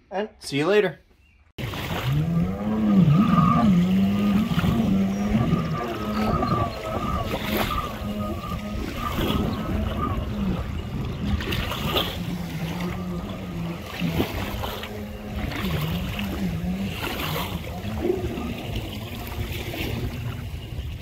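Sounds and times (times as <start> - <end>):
distant watercraft engine drone: 1.6 - 21.0.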